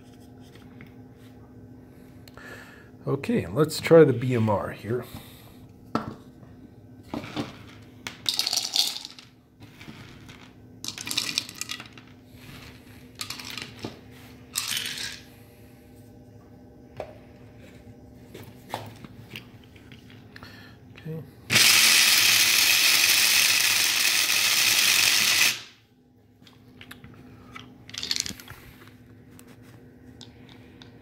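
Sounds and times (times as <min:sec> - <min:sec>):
corn kernels clattering: 0:07.2 - 0:12.0.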